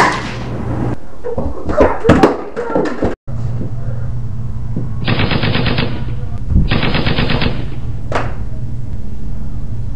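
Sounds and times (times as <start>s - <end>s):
steady low hum: 3.3s - 9.9s
rapid automatic gunfire: 5.0s - 6.1s, 6.7s - 7.8s.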